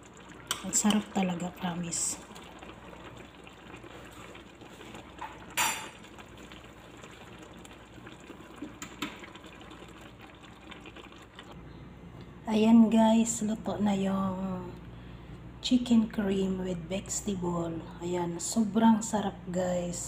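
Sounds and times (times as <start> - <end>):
sauce simmering in a pan: 0.0 - 11.6.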